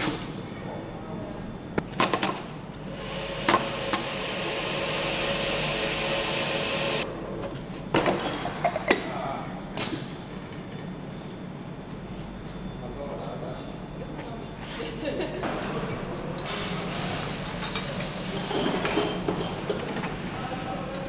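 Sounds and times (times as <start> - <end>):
machine air hiss: 2.8 - 7.0, 8.0 - 9.0, 16.5 - 18.8.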